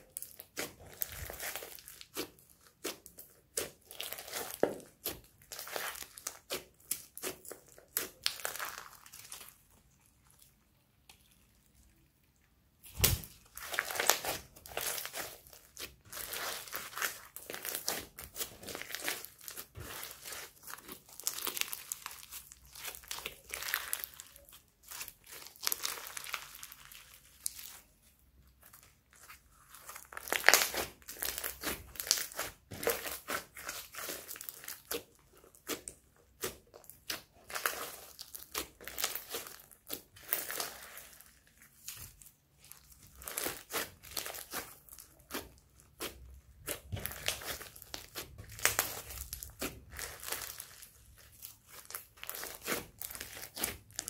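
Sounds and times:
slime crackling and popping: 0:00.0 - 0:11.3, 0:12.8 - 0:54.0.

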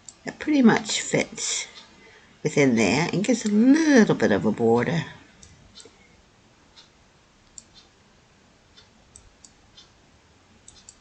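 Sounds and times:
faint computer mouse clicks: 0:07.5 - 0:07.9, 0:10.6 - 0:11.0.

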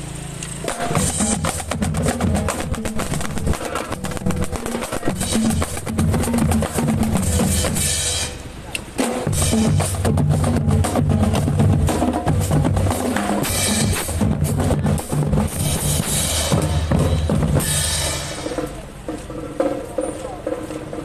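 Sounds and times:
pounding bass drums: 0:00.6 - 0:21.0
snare drums rattling: 0:00.6 - 0:21.0
cymbal crashes: 0:15.5 - 0:18.9.

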